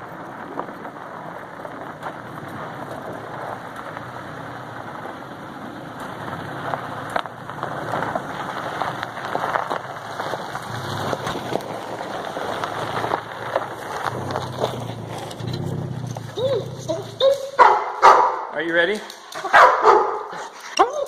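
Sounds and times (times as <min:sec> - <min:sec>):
tyres crunching on gravel: 0:00.0 - 0:21.0.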